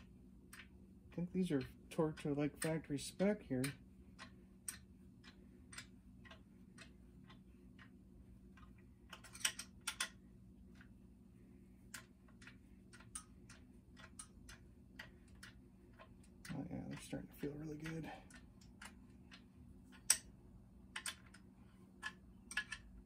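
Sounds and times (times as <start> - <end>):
faint steady hum: 0.0 - 23.0
hand ratchet clicking: 1.4 - 7.9, 11.9 - 20.3.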